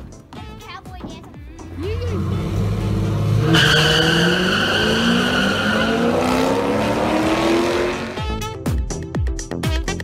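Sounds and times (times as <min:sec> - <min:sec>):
car engines accelerating: 0:01.6 - 0:08.4.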